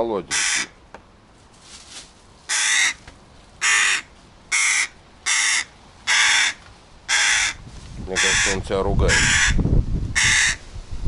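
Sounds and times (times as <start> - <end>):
crow cawing: 0.3 - 0.8, 2.5 - 3.0, 3.6 - 7.6, 8.2 - 9.6, 10.2 - 10.6.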